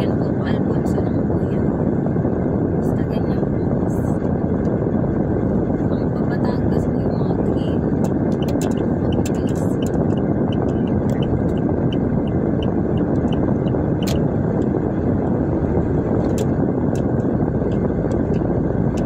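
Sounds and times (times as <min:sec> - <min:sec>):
car road and engine noise: 0:00.0 - 0:19.0
sharp clicks: 0:08.0 - 0:11.6, 0:12.6 - 0:14.2.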